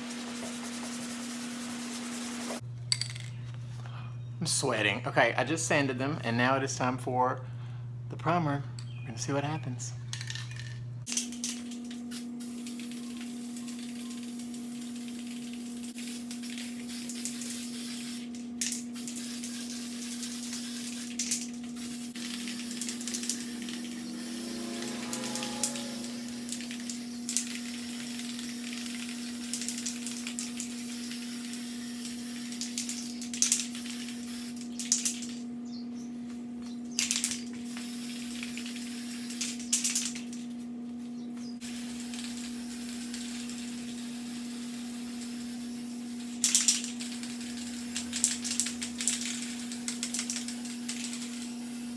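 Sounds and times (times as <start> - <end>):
steady low hum: 0.0 - 51.9
aerosol can spraying: 12.1 - 24.3, 26.4 - 34.7, 37.7 - 39.6, 41.6 - 51.9.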